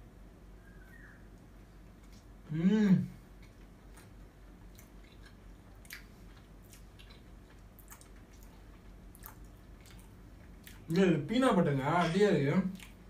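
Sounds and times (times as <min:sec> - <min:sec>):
close-up chewing: 0:03.3 - 0:10.9.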